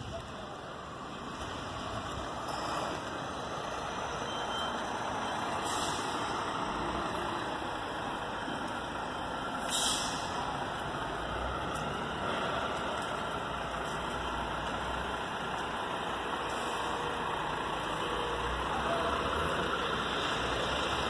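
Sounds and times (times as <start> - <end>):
heavy truck engines running: 0.0 - 21.0
air brake hisses: 5.5 - 6.2, 9.6 - 10.4.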